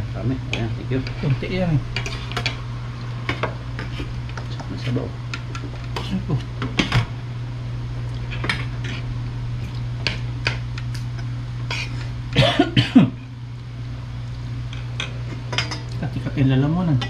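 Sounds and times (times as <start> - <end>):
steady low hum: 0.0 - 17.0
person coughing: 11.8 - 13.2.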